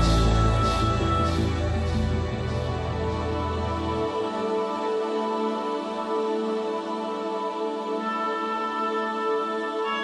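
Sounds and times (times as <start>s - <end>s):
deep bass line: 0.0s - 4.0s
sustained chords: 0.0s - 4.4s.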